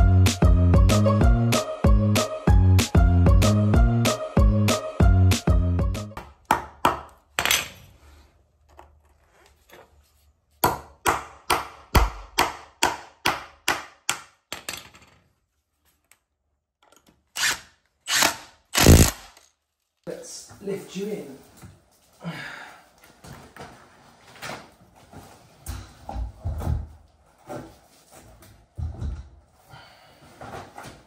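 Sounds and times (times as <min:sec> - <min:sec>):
hammer striking wood: 0:06.2 - 0:07.2, 0:10.6 - 0:14.4
impact driver bursts: 0:17.4 - 0:19.4.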